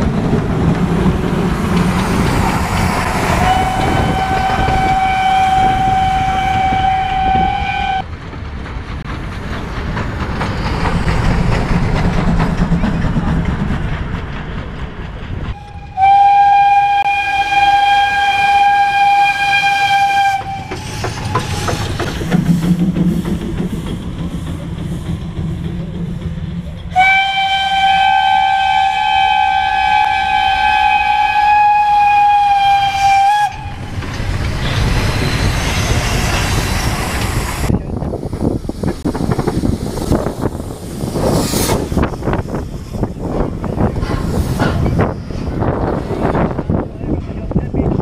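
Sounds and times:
steam locomotive whistle blasts: 3.4 - 8.0, 15.6 - 21.0, 26.9 - 33.9.

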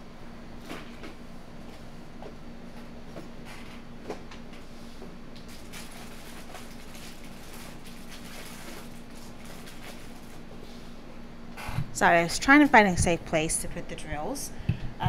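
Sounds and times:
low hum: 9.2 - 15.0.

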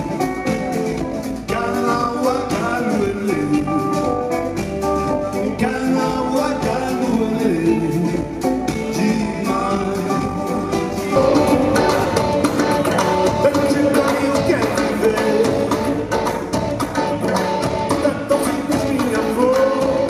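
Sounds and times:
electric guitar: 0.0 - 20.0
man singing: 1.4 - 4.6, 5.2 - 16.2, 17.0 - 20.0
steady beat: 8.1 - 20.0.

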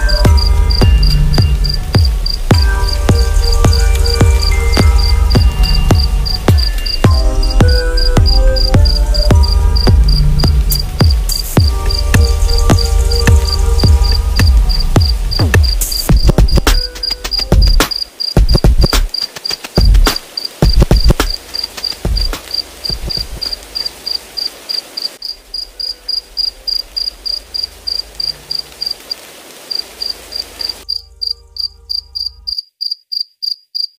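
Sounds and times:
low bass: 0.0 - 16.7
backing hiss: 0.0 - 30.8
looped insect chirp: 0.0 - 34.0
heavy kick drum hits: 0.3 - 16.7.

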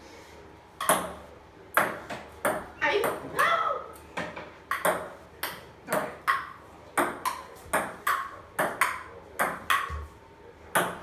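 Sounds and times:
ball bouncing on wooden table: 0.8 - 1.2, 1.8 - 3.4, 4.2 - 10.1, 10.7 - 11.0
ping-pong ball hitting paddles: 0.8 - 3.4, 4.2 - 10.1, 10.7 - 11.0.

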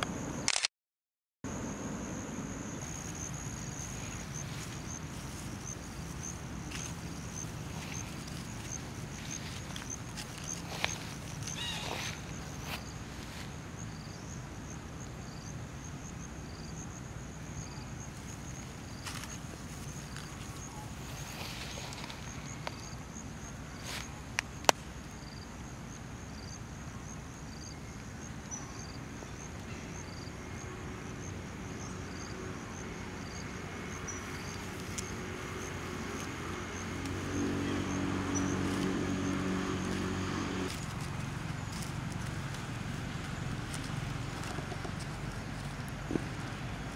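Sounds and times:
sharp clicks: 0.0 - 0.7
insects chirping: 1.5 - 46.9.

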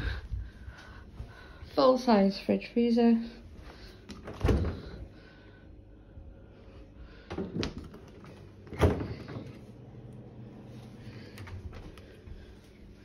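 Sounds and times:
fridge door thumping shut: 8.7 - 9.5.

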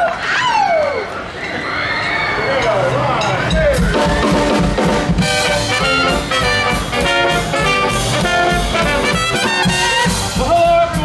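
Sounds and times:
drums: 2.6 - 11.0
upright bass: 3.5 - 11.0
trumpet: 3.8 - 11.0
slide trombone: 4.0 - 10.7
saxophone: 4.3 - 10.4.

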